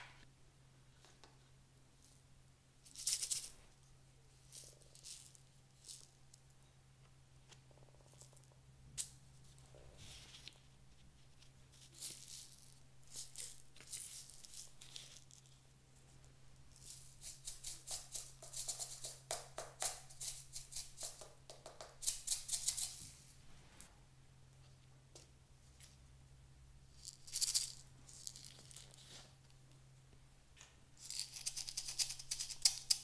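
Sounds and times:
beads rattling in hollow ornament: 0:02.8 - 0:03.6, 0:04.3 - 0:06.5, 0:11.7 - 0:15.6, 0:16.6 - 0:21.2, 0:21.9 - 0:23.2, 0:26.9 - 0:29.1, 0:31.0 - 0:33.0.

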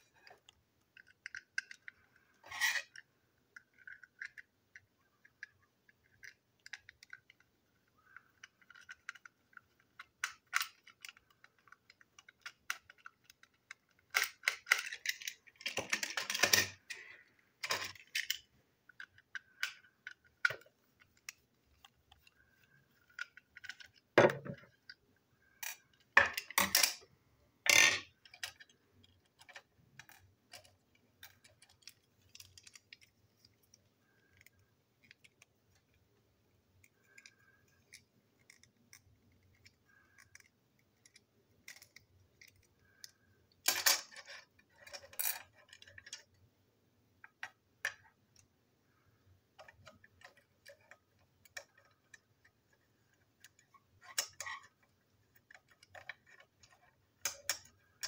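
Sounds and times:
plastic parts clicking: 0:00.2 - 0:27.0, 0:27.7 - 0:36.0, 0:36.8 - 0:46.4, 0:47.2 - 0:58.0.

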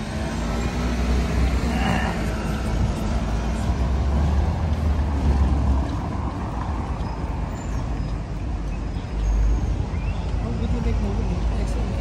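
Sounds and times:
bus and cars passing: 0:00.0 - 0:12.0
deep traffic rumble: 0:00.0 - 0:12.0.

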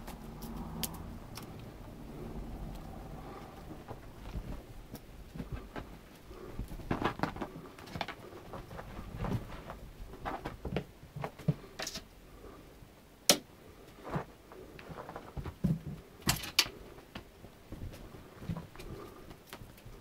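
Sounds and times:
paws thumping on fabric: 0:03.8 - 0:11.3.

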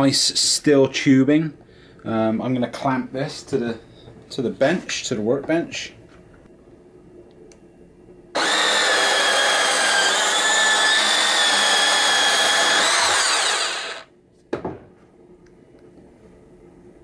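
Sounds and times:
bandsaw cutting steel tubing: 0:08.4 - 0:14.1.

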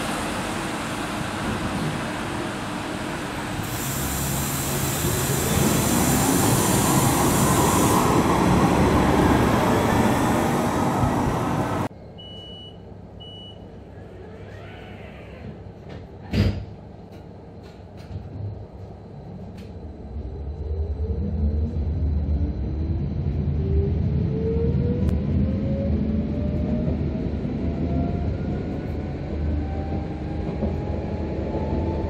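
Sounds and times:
tram rolling noise: 0:00.0 - 0:11.9, 0:15.0 - 0:32.0
short electronic beeps: 0:12.2 - 0:13.7.

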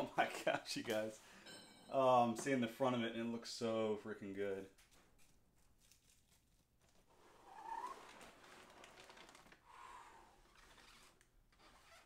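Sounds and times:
cardboard and plastic wrap crinkling: 0:05.1 - 0:09.7.

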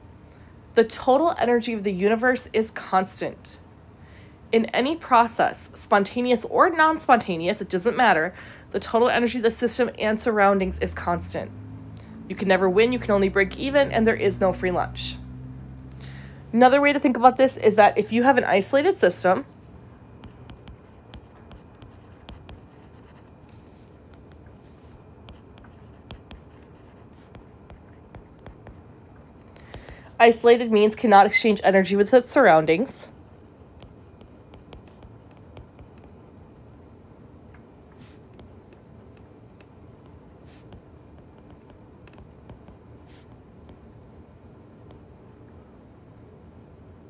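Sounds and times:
low steady hum: 0:00.0 - 0:47.0
stylus writing on tablet screen: 0:04.6 - 0:11.4, 0:12.3 - 0:15.1, 0:16.6 - 0:45.2
stylus tapping on tablet screen: 0:20.2 - 0:22.8, 0:24.1 - 0:24.6, 0:25.2 - 0:26.7, 0:33.8 - 0:36.1, 0:38.2 - 0:43.9.

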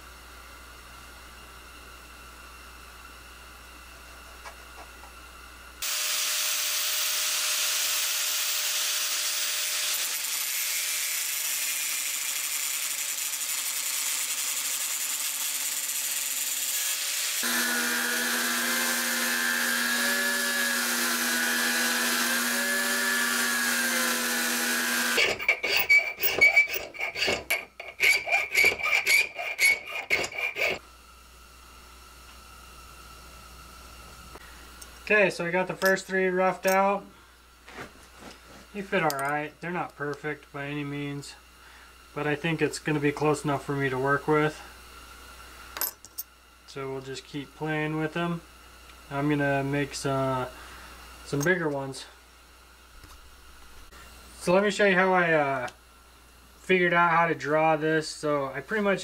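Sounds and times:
belt grinder motor humming: 0:05.8 - 0:30.8
rasping filing strokes: 0:16.7 - 0:30.8.

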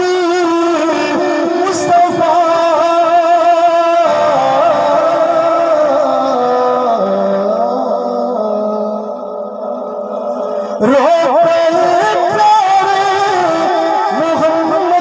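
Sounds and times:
man singing over loudspeaker: 0:00.0 - 0:15.0.

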